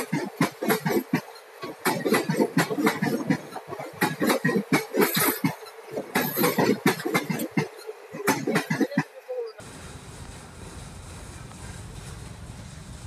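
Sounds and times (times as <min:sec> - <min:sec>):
train wheels clattering over rails: 0:00.0 - 0:09.1.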